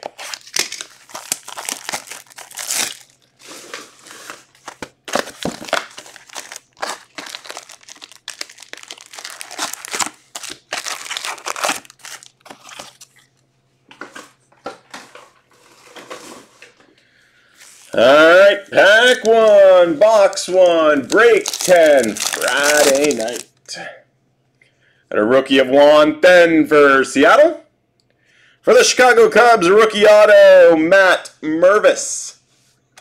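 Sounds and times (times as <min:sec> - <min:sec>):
foil card packs crinkling: 0:00.0 - 0:13.4, 0:17.5 - 0:23.6.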